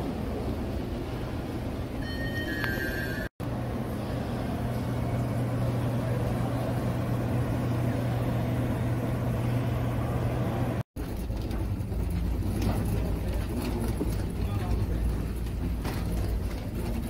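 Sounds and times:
constant low hum: 0:03.4 - 0:17.0.

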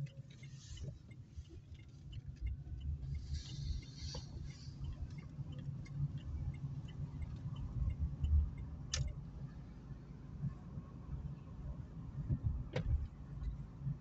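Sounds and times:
faint ticks: 0:00.0 - 0:09.3
car engine and tyres rumbling: 0:00.0 - 0:14.0
sharp click: 0:08.9 - 0:09.2.

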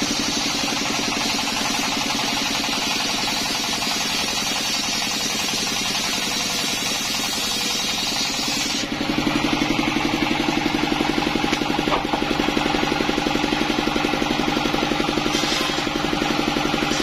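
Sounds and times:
diesel engine chugging: 0:00.0 - 0:07.4, 0:08.9 - 0:17.0
circular saw cutting wood: 0:00.0 - 0:09.8, 0:14.7 - 0:17.0.

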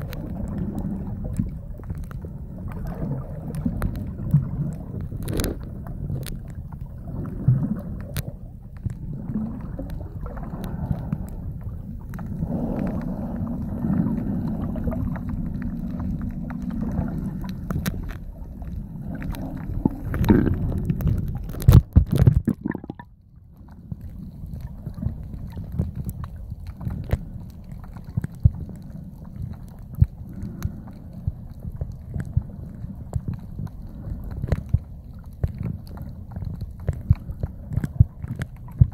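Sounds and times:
muffled underwater rumble: 0:00.0 - 0:38.9.

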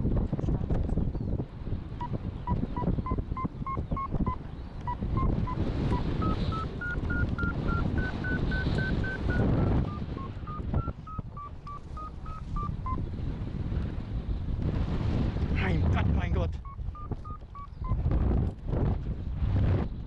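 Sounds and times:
wind rushing over microphone: 0:00.0 - 0:20.0
variometer beeping: 0:02.0 - 0:13.1, 0:16.6 - 0:18.0.

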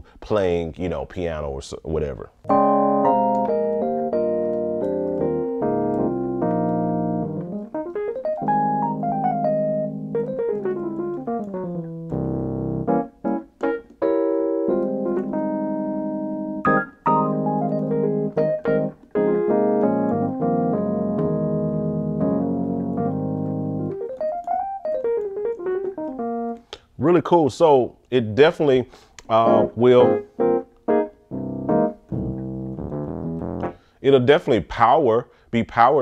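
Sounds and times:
piano chords and runs: 0:02.5 - 0:26.6, 0:29.3 - 0:33.8.

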